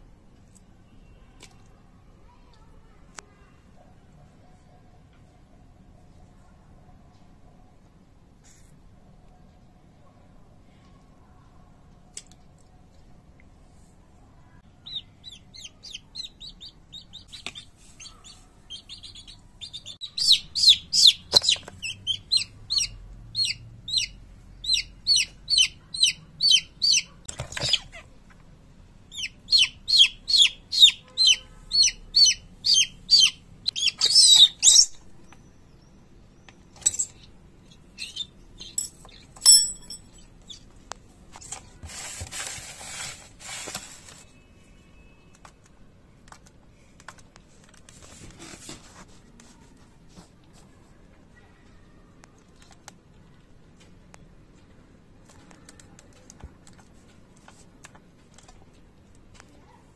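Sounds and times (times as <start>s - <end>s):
baby chick peeping: 14.6s - 39.4s, 40.2s - 41.7s.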